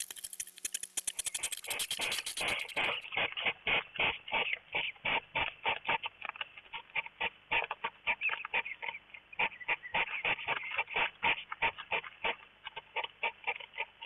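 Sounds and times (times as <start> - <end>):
hedgehogs snorting: 0.1 - 14.0.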